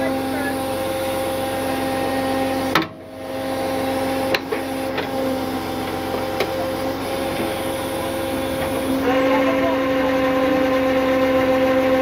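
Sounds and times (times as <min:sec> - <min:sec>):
winch mechanical whine: 0:00.0 - 0:12.0.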